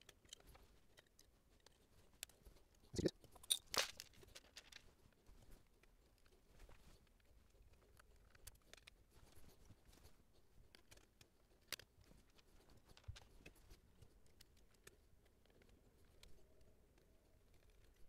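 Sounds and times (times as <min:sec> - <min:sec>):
hands handling radio parts: 0:03.2 - 0:10.1.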